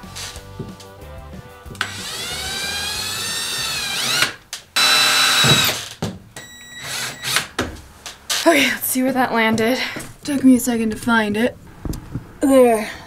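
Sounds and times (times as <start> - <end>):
cordless drill boring through wood: 1.8 - 5.9.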